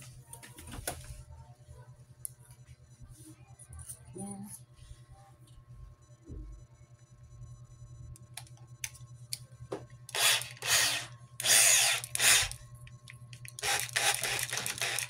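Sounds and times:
electric drill bursts: 0:10.1 - 0:12.6, 0:13.6 - 0:15.0.

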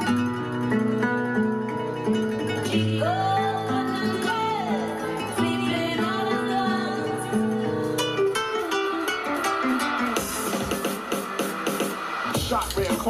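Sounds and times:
dance music over loudspeakers: 0:08.9 - 0:13.0.

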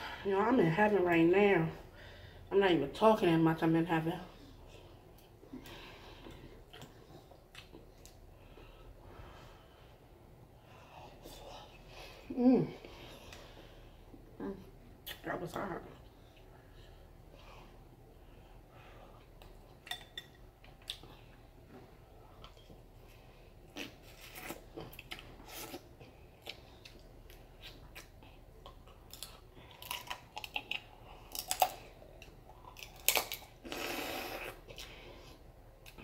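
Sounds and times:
person eating: 0:22.2 - 0:36.0.

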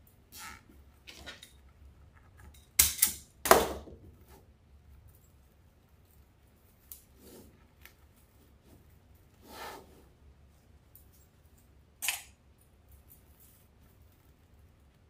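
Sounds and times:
soft rustles of craft materials: 0:04.0 - 0:15.0
short sharp scrape: 0:09.4 - 0:10.1.

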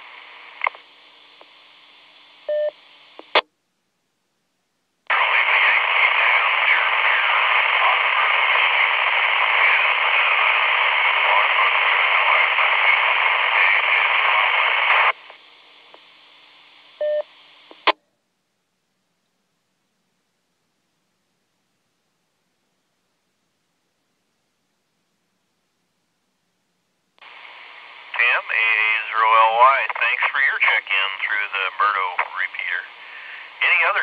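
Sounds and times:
faint radio carrier: 0:00.0 - 0:03.4, 0:05.1 - 0:18.0, 0:27.2 - 0:34.0
radio static hiss: 0:00.0 - 0:03.4, 0:05.1 - 0:18.0, 0:27.2 - 0:34.0
radio courtesy beep: 0:02.5 - 0:02.7, 0:17.0 - 0:17.3
radio squelch burst: 0:05.1 - 0:15.5, 0:27.2 - 0:34.0.

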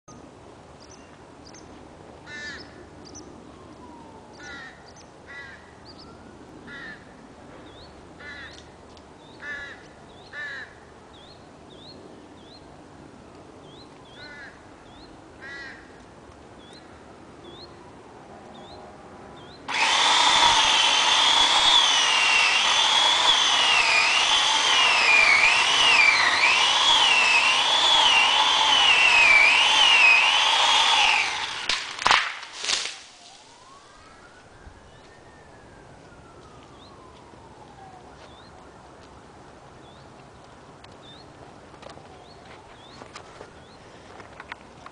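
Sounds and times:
birds calling: 0:02.3 - 0:03.3, 0:04.3 - 0:07.0, 0:07.6 - 0:12.7
chainsaw running: 0:19.7 - 0:33.2.

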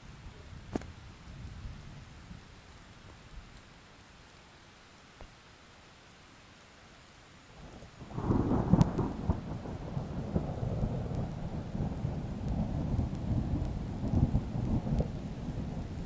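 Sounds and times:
thunder clap and rumble: 0:08.0 - 0:16.0.

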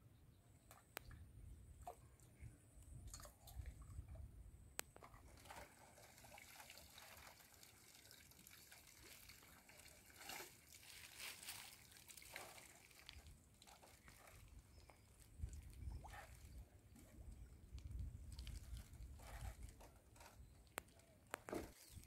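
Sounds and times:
water trickling and dripping: 0:05.0 - 0:21.1.

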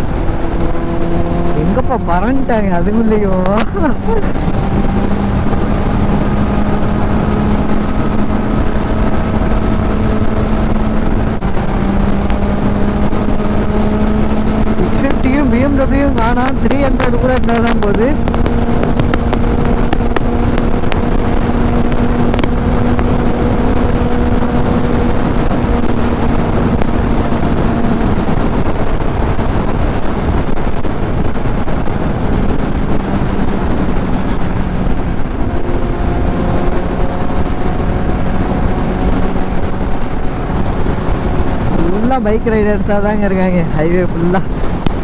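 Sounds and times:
motorcycle engine cruising: 0:00.0 - 0:45.0
wind rush: 0:00.0 - 0:45.0.

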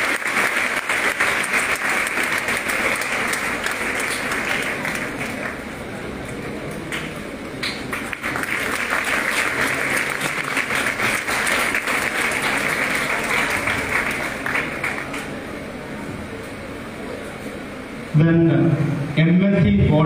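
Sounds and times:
audience applauding: 0:00.0 - 0:15.8.

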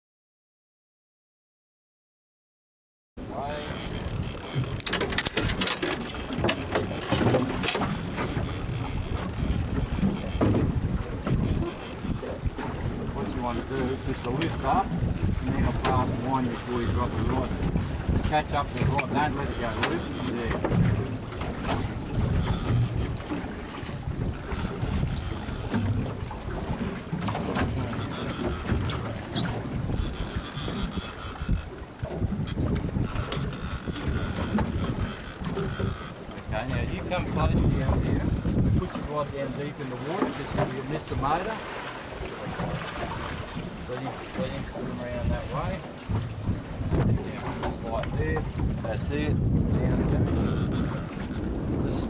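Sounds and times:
small boat rumble: 0:03.2 - 0:52.0
wind buffeting microphone: 0:03.2 - 0:52.0
fishing reel ratcheting: 0:03.5 - 0:10.6, 0:11.3 - 0:12.4, 0:13.4 - 0:14.8, 0:16.5 - 0:17.6, 0:19.2 - 0:20.7, 0:22.3 - 0:23.2, 0:24.2 - 0:26.0, 0:28.0 - 0:36.4, 0:37.4 - 0:39.6, 0:50.2 - 0:51.5.

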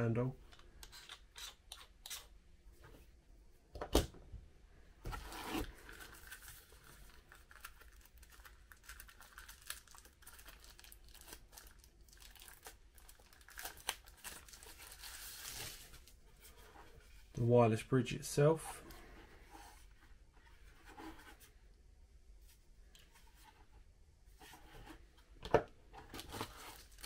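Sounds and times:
plastic bag crinkling: 0:05.7 - 0:15.8.

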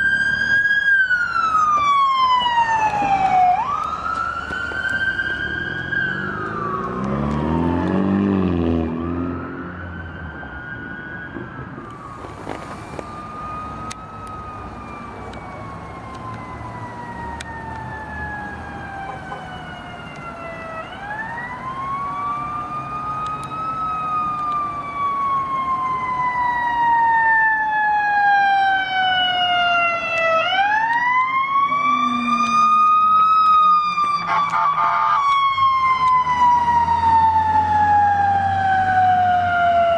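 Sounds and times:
emergency siren wailing: 0:00.0 - 0:39.9
heavy vehicle passing: 0:02.2 - 0:10.0.

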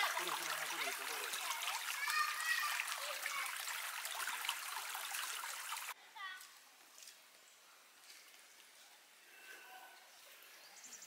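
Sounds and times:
stream water rushing: 0:00.0 - 0:06.0.

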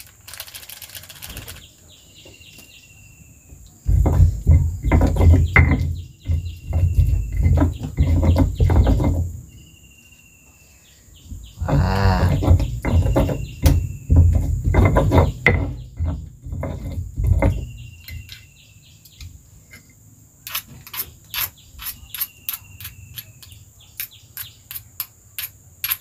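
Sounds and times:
stone pestle grinding in mortar: 0:03.9 - 0:09.5, 0:11.6 - 0:18.5, 0:20.5 - 0:26.0.

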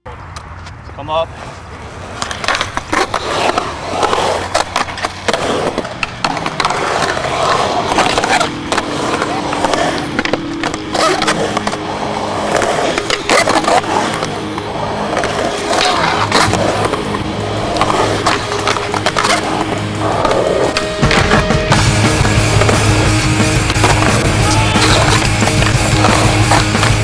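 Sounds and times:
skateboard wheels rolling on concrete: 0:00.1 - 0:27.0
band music: 0:07.2 - 0:27.0.

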